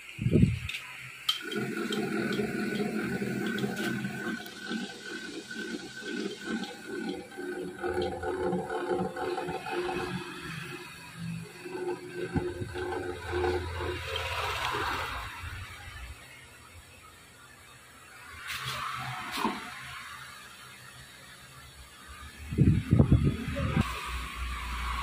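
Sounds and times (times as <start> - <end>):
boring machine running: 1.3 - 16.3.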